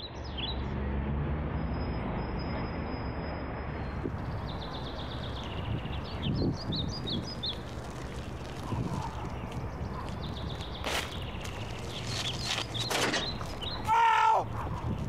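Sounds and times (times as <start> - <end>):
birds chirping: 3.8 - 15.0.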